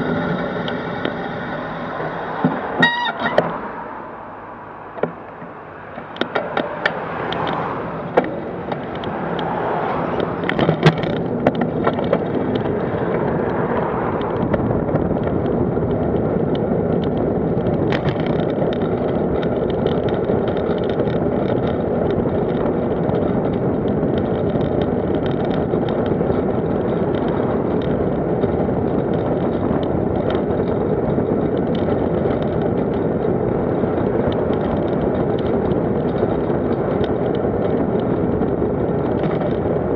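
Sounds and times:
sharp clicks and knocks: 0:00.0 - 0:03.6, 0:04.9 - 0:39.9
wind rushing: 0:00.0 - 0:18.0
road noise: 0:00.0 - 0:39.9.

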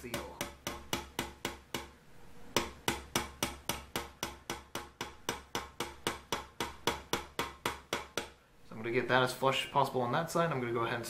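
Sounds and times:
hammer tapping metal pin: 0:00.0 - 0:08.4.

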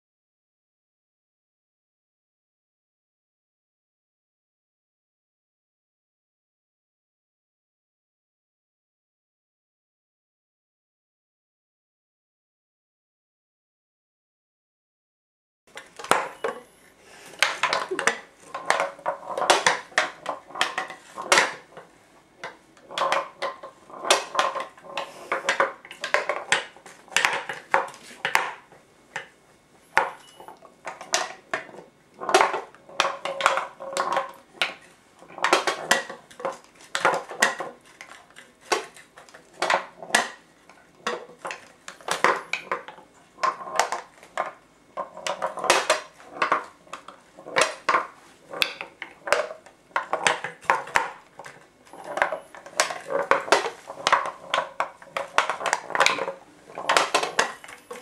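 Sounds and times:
metal ball rolling in wooden maze: 0:15.7 - 0:16.8, 0:17.4 - 0:58.0.

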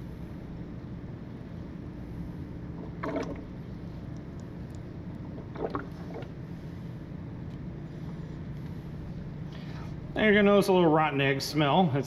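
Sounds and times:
steady low hum: 0:00.0 - 0:12.0
liquid gurgling through a tube: 0:02.7 - 0:03.6, 0:05.2 - 0:06.4.

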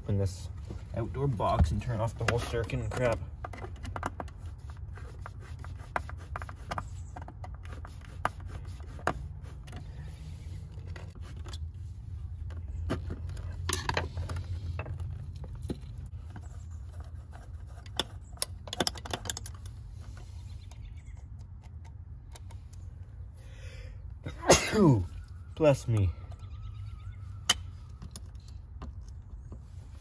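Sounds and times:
clicks and taps of wires and tools: 0:01.5 - 0:04.4, 0:17.8 - 0:22.9.

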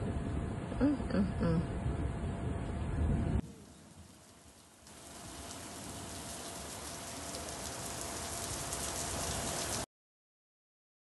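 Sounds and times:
rain falling on wet paving: 0:03.5 - 0:09.9.

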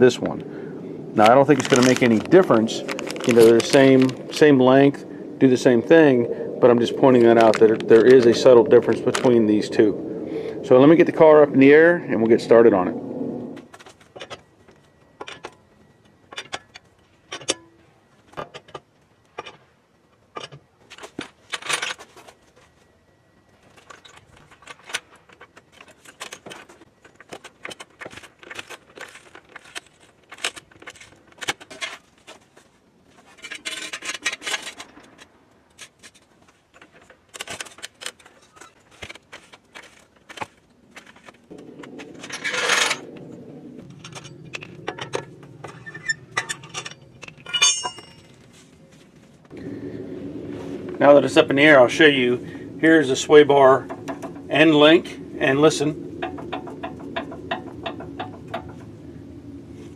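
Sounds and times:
lug wrench clanking: 0:16.3 - 0:19.7, 0:41.5 - 0:48.4, 0:53.8 - 0:59.0
metal scraping: 0:35.8 - 0:49.0.

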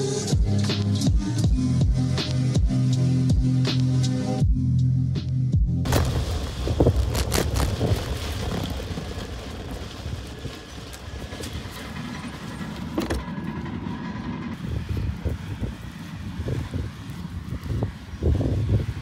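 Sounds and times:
wind on microphone: 0:05.8 - 0:13.2, 0:14.5 - 0:19.0
bike knocking and rattling: 0:05.9 - 0:18.6
bicycle tires on dirt road: 0:05.9 - 0:19.0.

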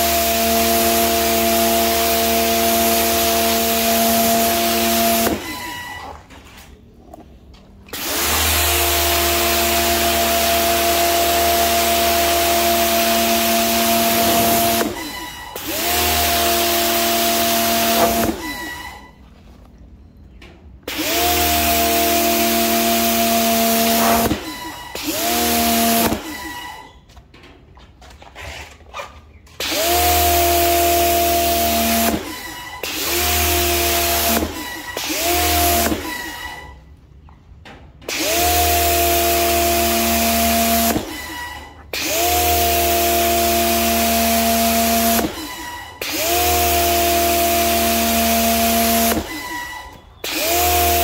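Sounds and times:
pressure washer running: 0:00.0 - 0:06.2, 0:07.9 - 0:19.2, 0:20.9 - 0:26.9, 0:29.6 - 0:36.7, 0:38.1 - 0:51.0
motor spinning up whine: 0:07.9 - 0:19.2, 0:20.9 - 0:26.9
pressure washer jet hissing: 0:08.0 - 0:19.0, 0:21.0 - 0:26.0.

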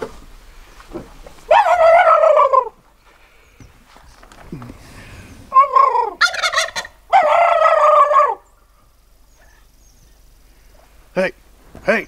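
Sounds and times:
turkeys calling and gobbling: 0:01.4 - 0:02.8, 0:04.8 - 0:09.7.

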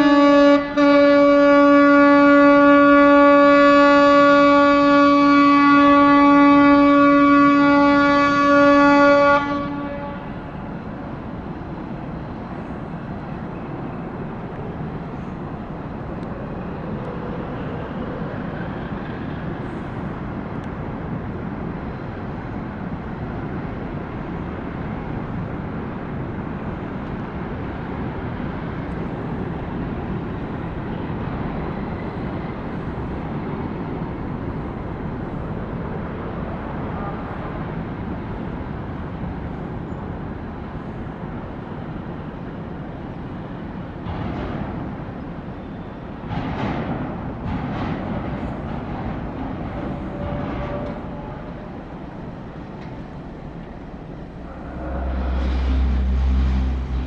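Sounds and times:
ship hull sliding rumble: 0:46.2 - 0:57.0.

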